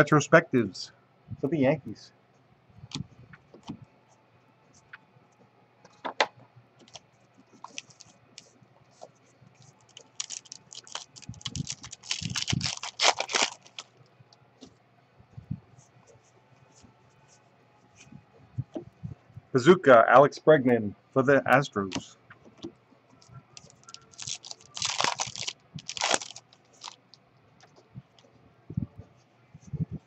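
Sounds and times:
wrapper tearing and crinkling: 9.8s - 13.9s, 23.6s - 27.0s.

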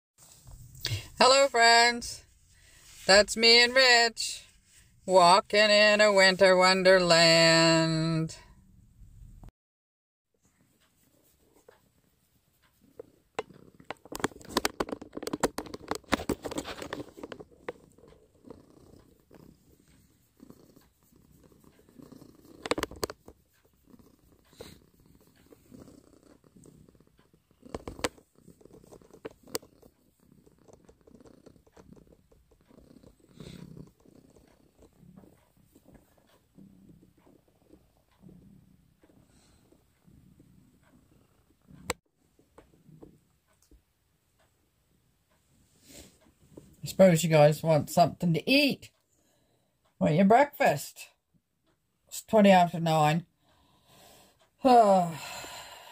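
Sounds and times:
cat purring: 10.4s - 48.0s.

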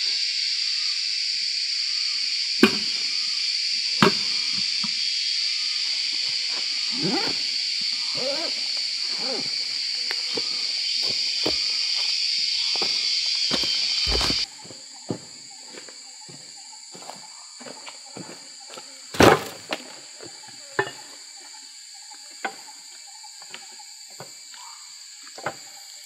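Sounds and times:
forest insects droning: 0.0s - 26.0s.

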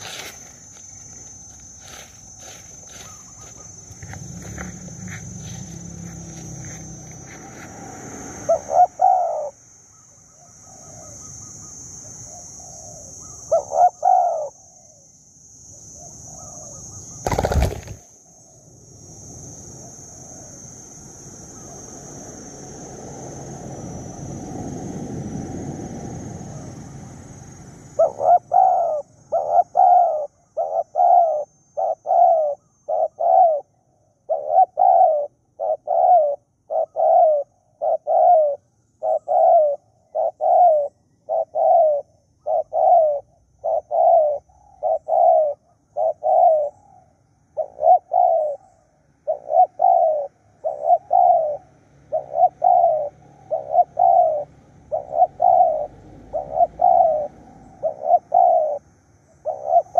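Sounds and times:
dove cooing: 8.5s - 9.6s, 12.3s - 14.9s, 16.0s - 18.0s, 28.0s - 59.9s.

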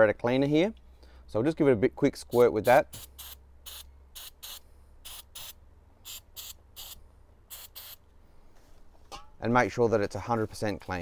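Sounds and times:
aerosol spray hissing squirts: 2.9s - 8.0s.

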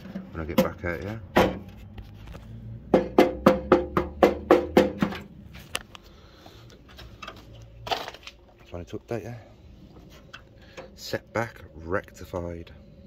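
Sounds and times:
wood block knocks: 2.9s - 5.2s.

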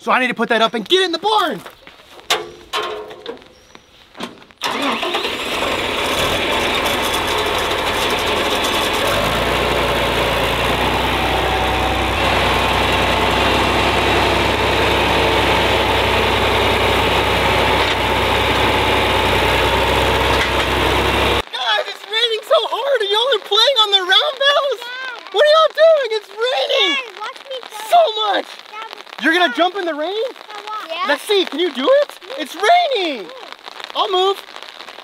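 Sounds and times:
tractor engine running: 4.6s - 21.4s
deep steady drone: 6.8s - 21.4s.

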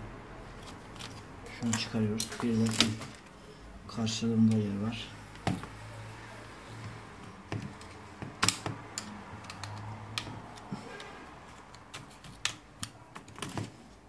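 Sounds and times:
sharp plastic clicks and taps: 7.4s - 13.8s.

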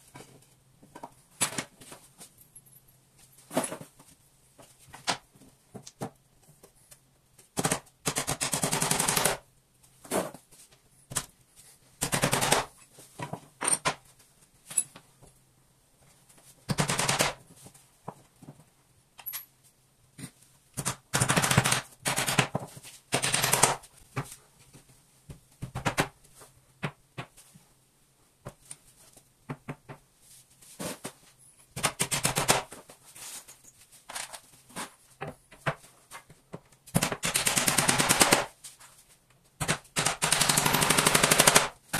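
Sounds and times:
power tool rapid knocking: 40.1s - 41.7s.

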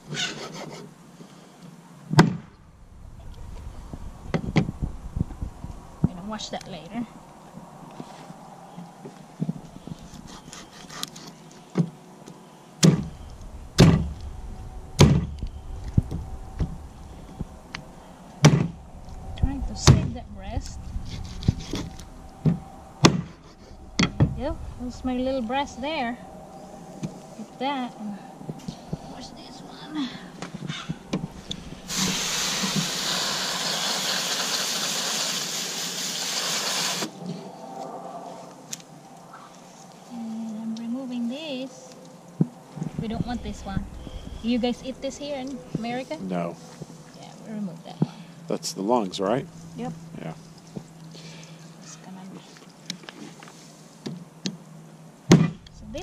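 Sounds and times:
hose nozzle spraying water: 31.9s - 37.1s.

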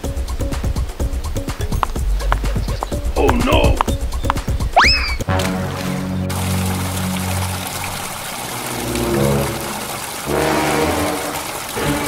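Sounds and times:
clip-clop hoofbeats: 0.0s - 4.8s
cartoon music with repeating beat: 0.0s - 5.4s.

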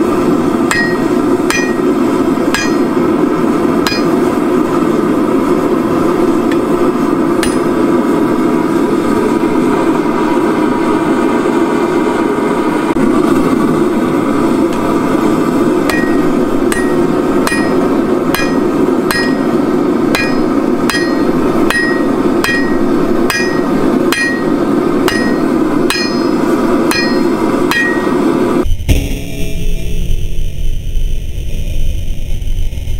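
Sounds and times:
gas forge burner rushing: 0.0s - 28.7s
hammer striking steel on anvil: 0.6s - 4.5s, 7.4s - 8.0s, 15.8s - 30.0s.

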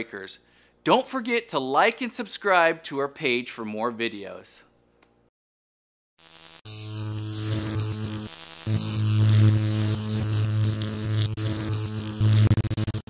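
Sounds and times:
electrical buzz with crackling static: 6.2s - 13.0s.

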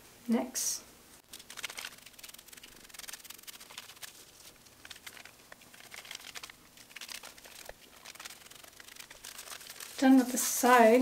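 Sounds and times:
foil crinkling: 1.2s - 11.0s.

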